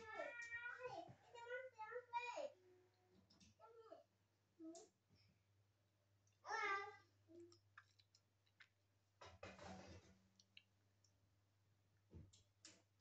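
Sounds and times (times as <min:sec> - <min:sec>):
child's high-pitched vocal sound: 0:06.5 - 0:07.4.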